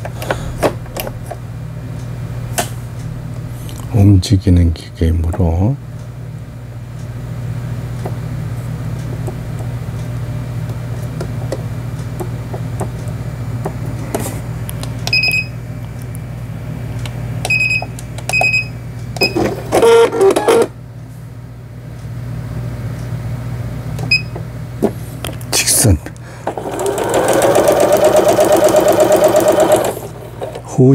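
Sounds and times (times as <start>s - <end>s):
sewing machine humming: 26.4s - 30.7s.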